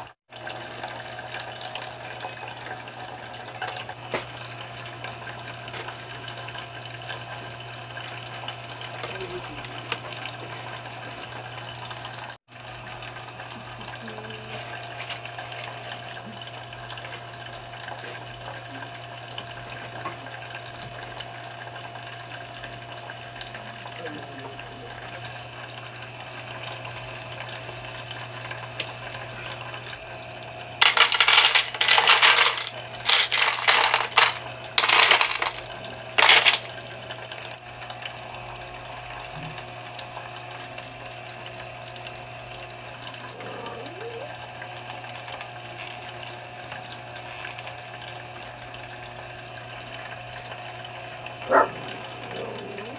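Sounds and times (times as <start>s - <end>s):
pebbles clattering into bowl: 30.8s - 36.7s
fountain water trickling: 35.6s - 52.9s.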